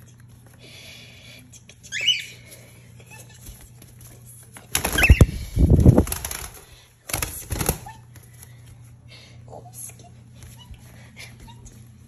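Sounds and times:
bird chirps: 1.9s - 2.4s, 5.0s - 5.3s
bird wings flapping: 4.6s - 8.0s.

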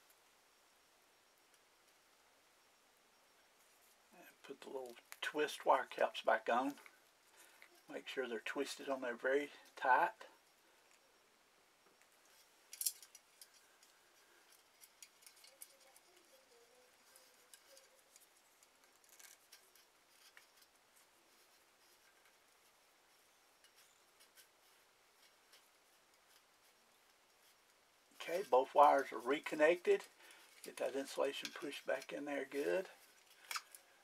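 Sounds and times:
plastic wire caps clicking: 12.7s - 13.9s.

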